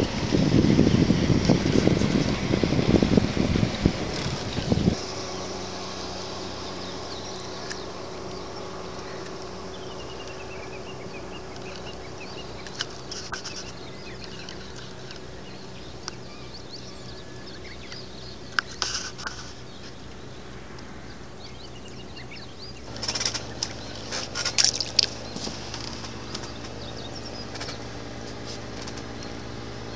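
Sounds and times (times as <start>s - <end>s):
faint bird chirping: 0.0s - 29.9s
low engine hum: 0.0s - 29.9s.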